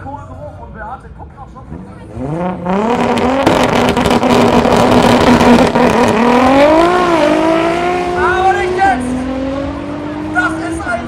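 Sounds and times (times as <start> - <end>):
car engines revving: 1.2 - 11.0
engine crackle: 2.4 - 8.0.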